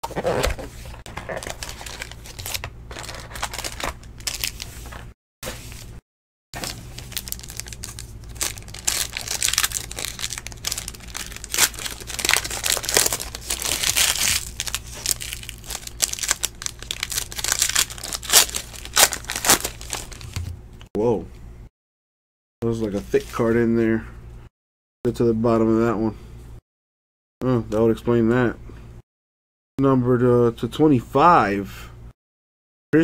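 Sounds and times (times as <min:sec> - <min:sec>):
foil wrapper crinkling and tearing: 0:01.1 - 0:04.8, 0:06.6 - 0:20.5
steady low hum: 0:06.6 - 0:21.7.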